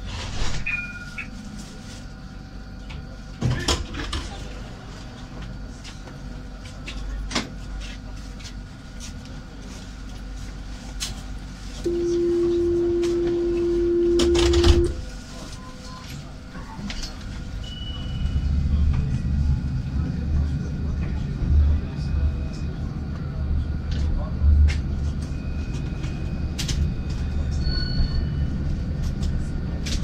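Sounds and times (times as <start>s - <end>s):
steady low hum in cab: 0.0s - 30.0s
door-closing warning tone: 0.5s - 1.3s, 11.9s - 16.3s, 17.0s - 18.5s, 25.3s - 28.6s.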